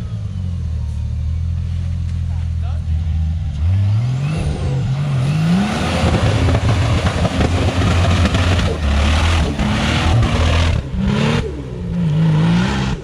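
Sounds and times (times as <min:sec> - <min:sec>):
truck engine revving roughly: 0:03.0 - 0:13.0.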